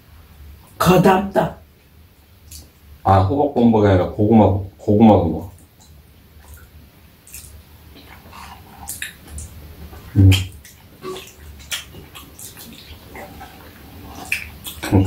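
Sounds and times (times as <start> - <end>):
wet eating sounds: 2.5 - 2.8, 5.4 - 15.0.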